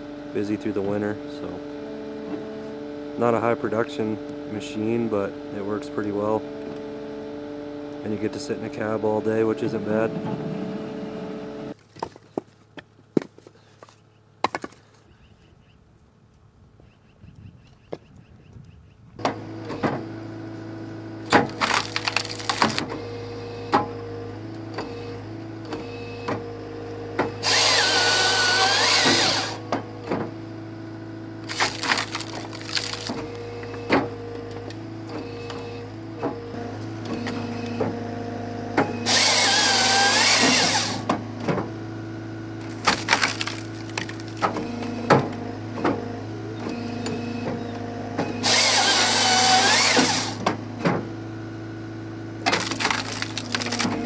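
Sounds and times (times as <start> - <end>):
hydraulic saw cutting log: 0.0 - 11.8, 19.2 - 51.3, 52.0 - 54.0
diesel engine and hydraulics running: 0.0 - 16.3, 19.0 - 54.0
wood splitting cracks and knocks: 21.3 - 23.0, 31.4 - 34.1, 42.6 - 45.4, 52.4 - 54.0.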